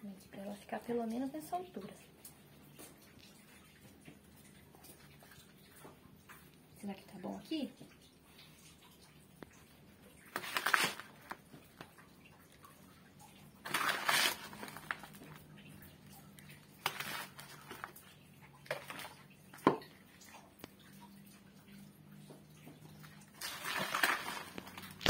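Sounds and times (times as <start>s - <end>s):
soil scraping and crumbling: 13.6s - 15.3s.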